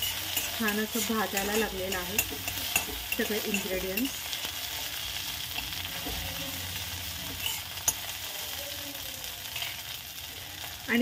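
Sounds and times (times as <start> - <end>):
metal spatula stirring: 0.0 - 8.6, 9.4 - 10.2
food sizzling in oil: 0.0 - 11.0.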